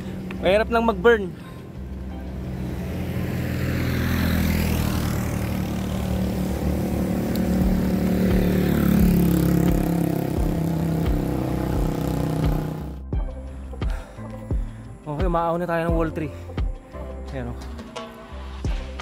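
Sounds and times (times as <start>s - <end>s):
vehicle engine running: 0.0s - 13.1s.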